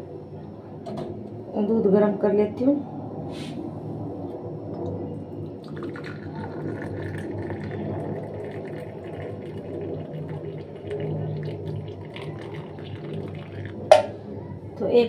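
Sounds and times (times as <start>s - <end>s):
low steady hum: 0.0s - 15.0s
tea pouring through strainer: 5.4s - 14.2s.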